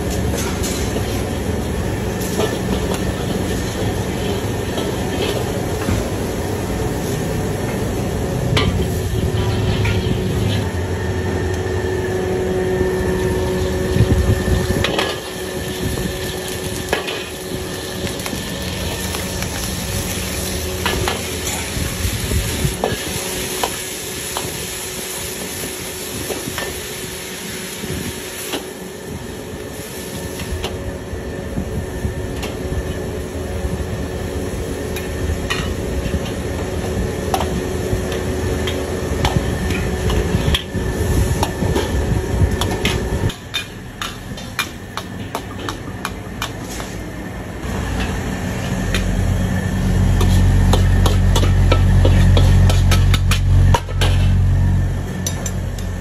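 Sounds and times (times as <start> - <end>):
food sizzling in a wok: 0.0 - 45.5, 47.6 - 56.0.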